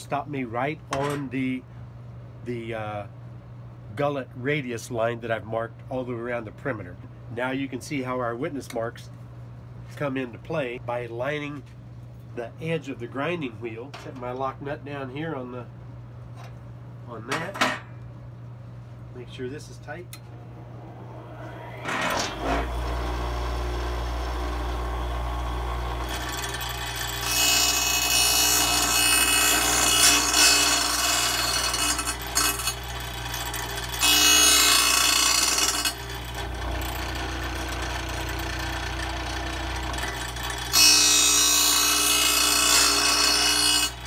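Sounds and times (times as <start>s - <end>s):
motor spinning up: 20.5s - 26.4s
grinding wheel grinding steel: 20.9s - 44.0s.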